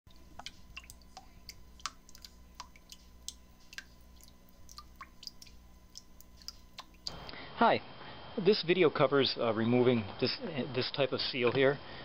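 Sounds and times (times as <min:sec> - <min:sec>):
faint scattered clicks and ticks: 0:00.1 - 0:07.3
low steady hum: 0:00.1 - 0:12.0.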